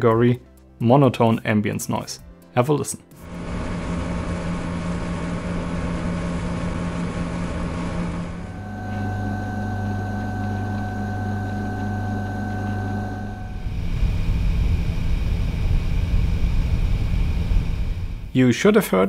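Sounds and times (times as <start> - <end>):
refrigerator drone: 3.2 - 18.4
air conditioner humming: 3.3 - 18.4
faint high whine: 3.3 - 18.4.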